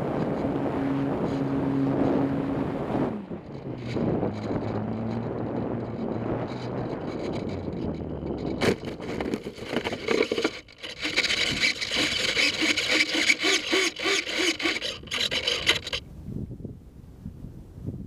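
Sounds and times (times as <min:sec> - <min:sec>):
scraping and rubbing on camera: 0:03.4 - 0:16.0.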